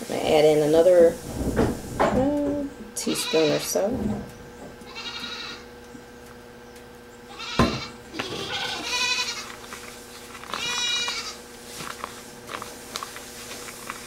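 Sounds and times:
goats bleating: 3.0 - 3.8, 4.8 - 5.7, 7.3 - 9.7, 10.5 - 11.5.

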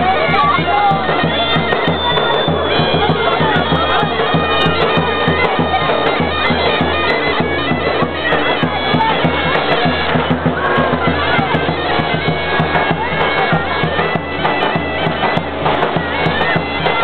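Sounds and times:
shrill double-reed melody: 0.0 - 17.0.

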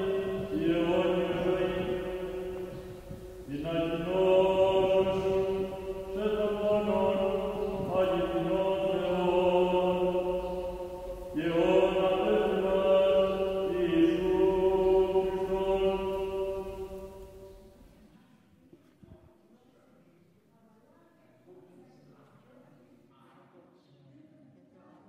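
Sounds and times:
voices chanting slowly: 0.0 - 18.0.

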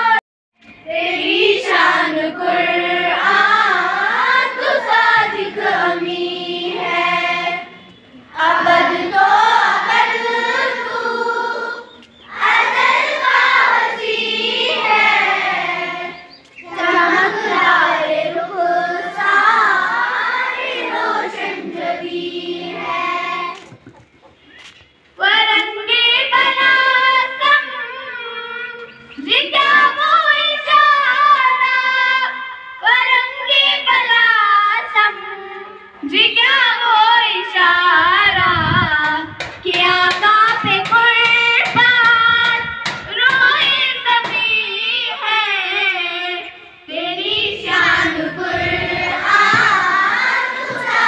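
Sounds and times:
children singing in unison: 0.8 - 24.0, 26.2 - 38.4, 39.7 - 51.0.

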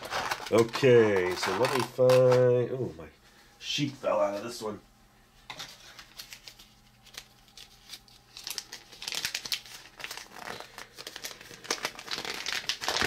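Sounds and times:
packaging crinkling and rustling: 0.0 - 2.5, 5.5 - 13.0.

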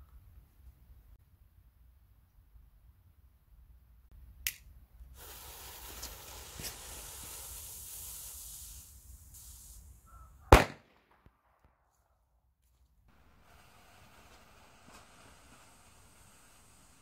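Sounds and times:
firecracker fuse hissing: 5.1 - 10.3, 13.1 - 17.0
firecracker bang: 10.5 - 11.3.

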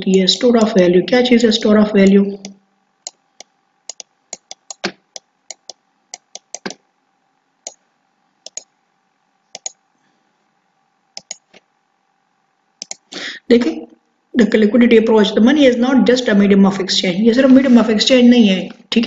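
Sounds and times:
faint steady hum: 0.0 - 19.0
computer mouse buttons clicking: 2.4 - 6.8, 8.4 - 8.7, 9.5 - 9.8, 11.2 - 11.7, 12.8 - 13.1.

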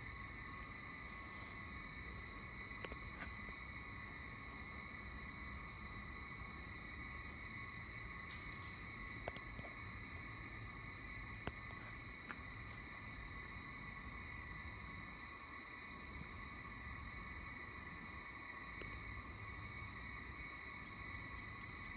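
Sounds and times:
night insect chorus: 0.0 - 21.9.

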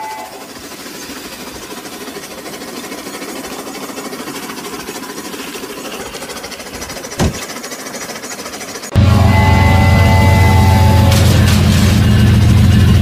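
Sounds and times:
toy train motor whirring: 0.0 - 11.1
sharp thump: 7.2 - 7.4.

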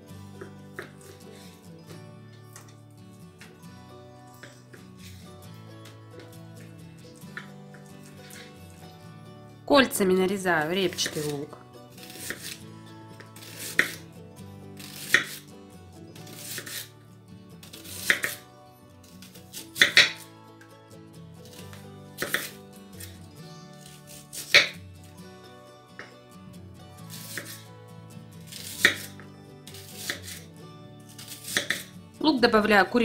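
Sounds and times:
soft background music: 0.0 - 33.0
knife slicing onion: 0.3 - 2.8, 4.3 - 8.6, 10.9 - 15.5, 16.2 - 17.0, 17.6 - 20.4, 21.4 - 24.8, 27.0 - 27.7, 28.4 - 32.0.

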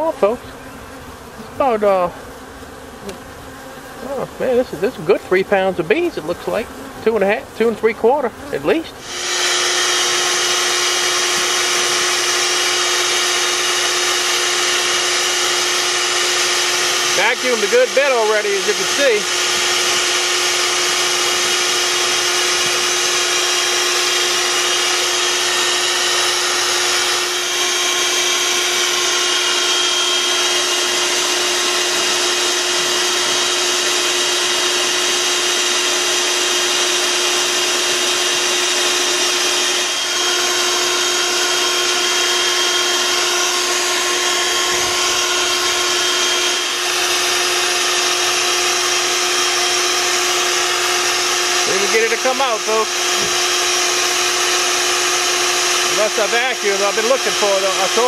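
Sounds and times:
vacuum motor hum and air rush: 0.0 - 58.0.

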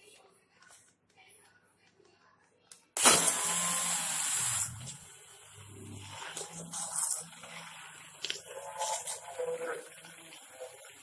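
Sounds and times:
hand blender whirring: 3.0 - 5.0.

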